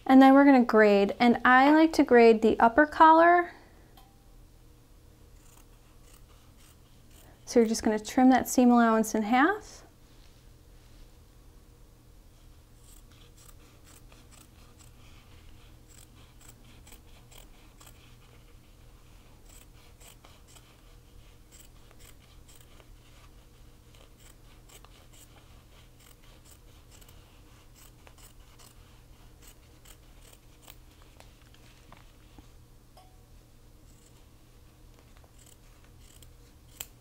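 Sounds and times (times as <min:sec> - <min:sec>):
scissors snipping fabric: 0:05.4 - 0:07.3, 0:12.8 - 0:18.4, 0:19.4 - 0:31.1, 0:33.9 - 0:34.2, 0:35.0 - 0:37.0.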